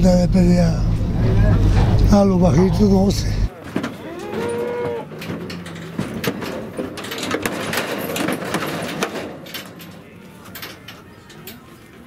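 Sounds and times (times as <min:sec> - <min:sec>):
horse hooves clattering on truck bed: 0:03.5 - 0:12.0.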